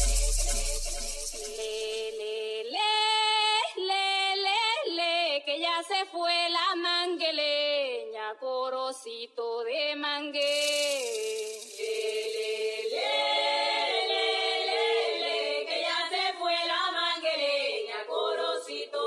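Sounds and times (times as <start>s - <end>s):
bright hiss: 0.0s - 2.5s, 10.4s - 14.2s
voices singing in harmony: 10.4s - 19.0s.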